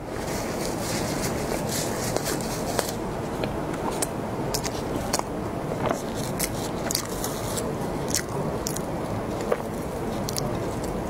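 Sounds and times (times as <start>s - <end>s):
cream filling squishing: 5.9s - 11.0s
pastry crust crackling: 5.9s - 11.0s.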